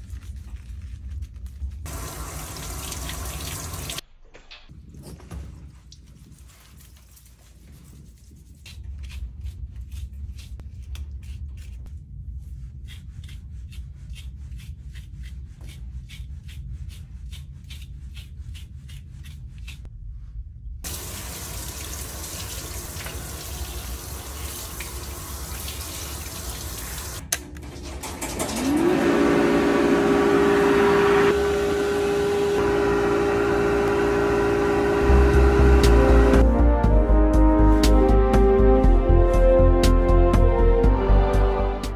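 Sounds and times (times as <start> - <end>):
comb pulled through wet fur: 0.0 - 1.9, 5.8 - 19.8
water spraying from sprayer: 1.9 - 4.0, 20.9 - 27.2
low hum: 28.8 - 37.8.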